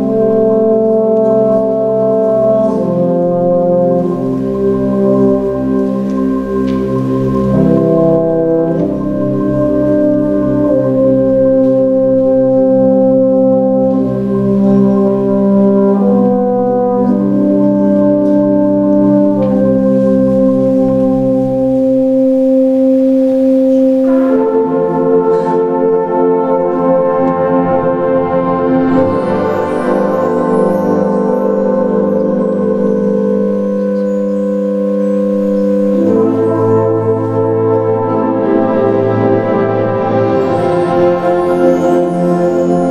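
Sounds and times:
brass band playing held chords: 0:00.0 - 0:42.9.

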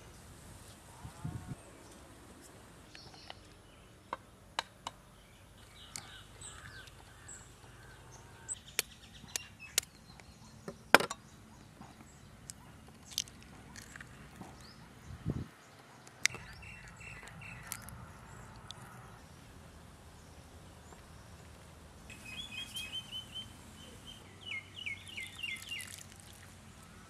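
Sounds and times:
faint bird chirps: 0:22.1 - 0:26.0.

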